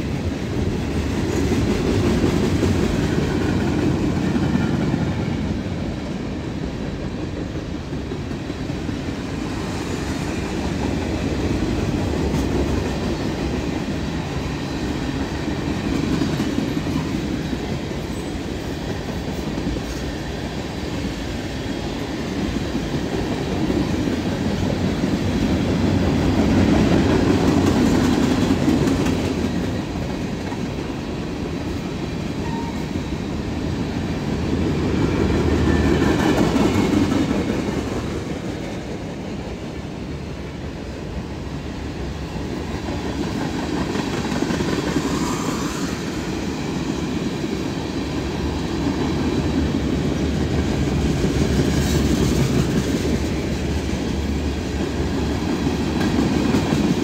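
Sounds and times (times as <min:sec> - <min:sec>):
freight train rolling past: 0:00.0 - 0:57.0
steel wheels rumbling on rail: 0:00.0 - 0:57.0.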